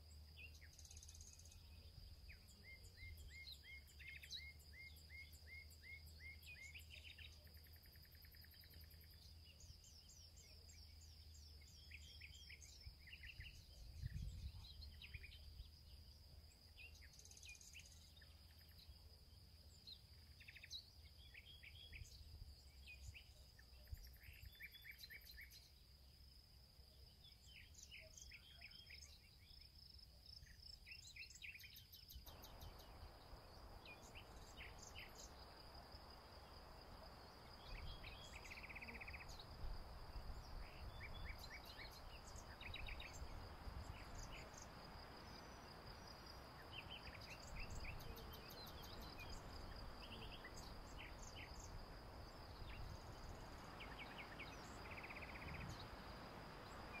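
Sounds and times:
faint even hiss: 0.0 - 57.0
low wind rumble: 13.4 - 15.0, 32.2 - 57.0
insects trilling: 27.0 - 57.0
birds chirping: 27.5 - 57.0.

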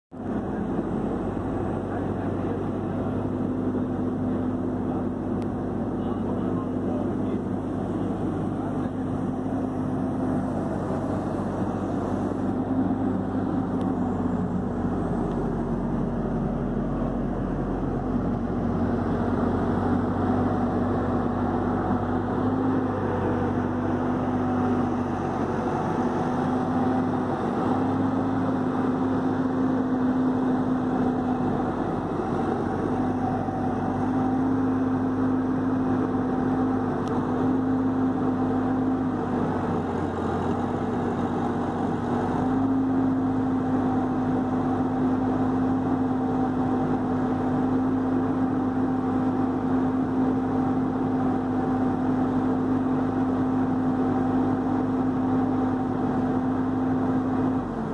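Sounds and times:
excavator diesel engine running: 0.1 - 57.9.

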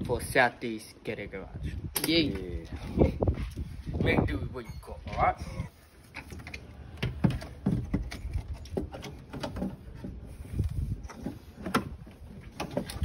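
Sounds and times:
metal clunks and scrapes: 6.0 - 13.0.

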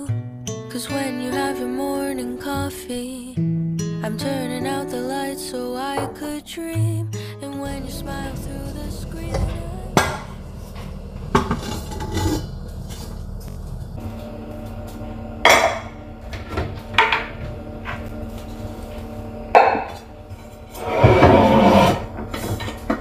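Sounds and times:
pots and lids clanking: 7.7 - 13.9, 15.4 - 18.6, 19.5 - 23.0.

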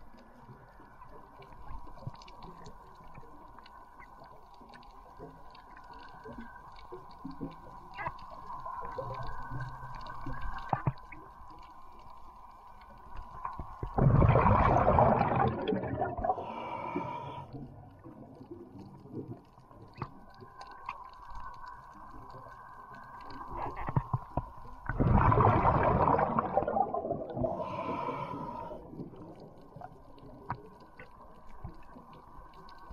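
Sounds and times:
faint ticks and clicks: 0.0 - 14.0, 16.2 - 25.0, 27.0 - 32.9
underwater hum: 0.0 - 32.9.

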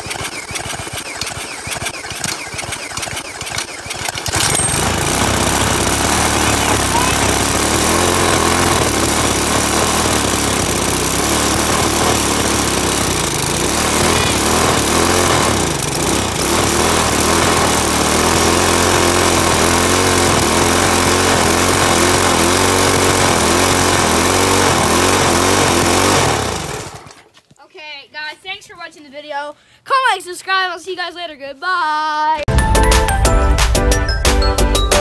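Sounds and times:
small engine revving: 0.0 - 27.3.

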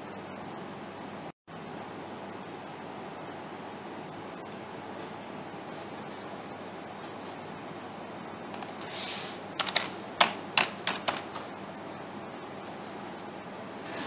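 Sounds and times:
keyboard keystrokes: 8.5 - 8.8, 9.6 - 11.5.

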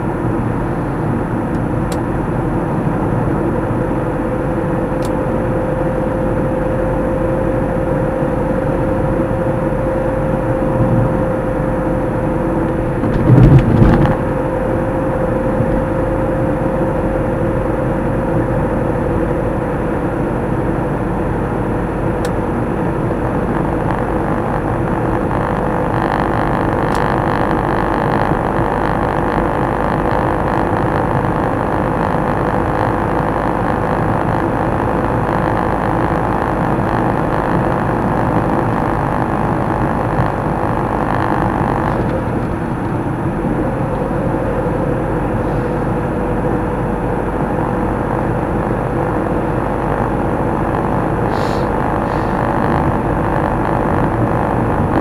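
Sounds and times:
car road and engine noise: 0.0 - 55.0
steady hum: 0.0 - 55.0.

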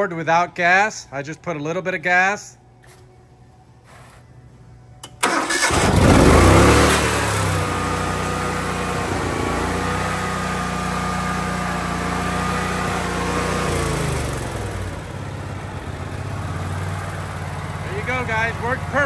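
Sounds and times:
generator engine starting and running: 5.0 - 19.0.

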